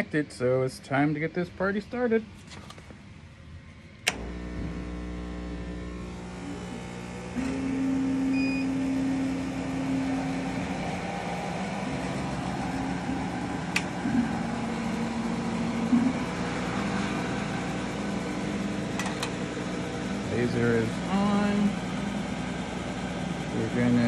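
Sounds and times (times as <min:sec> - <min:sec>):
laser cutter machine hum: 0:03.6 - 0:24.0
short high beep: 0:08.3 - 0:08.8.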